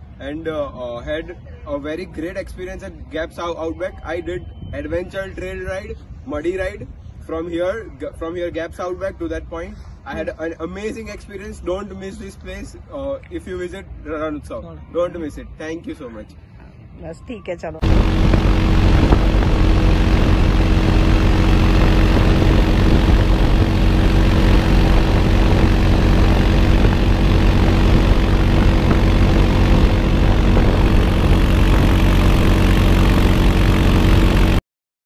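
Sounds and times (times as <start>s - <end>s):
wind noise on microphone: 3.8s - 9.0s, 16.8s - 34.6s
atv engine droning: 17.8s - 34.6s.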